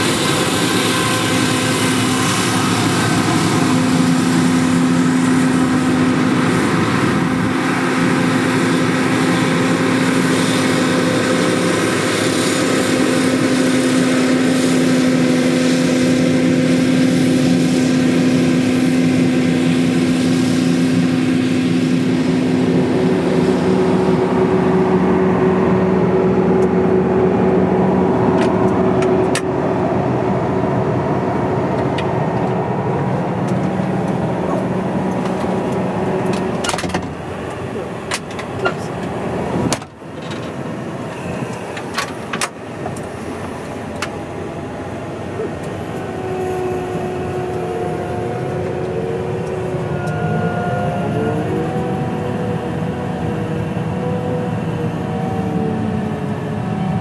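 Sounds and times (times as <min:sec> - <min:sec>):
combine harvester engine drone: 0:00.0 - 0:57.0.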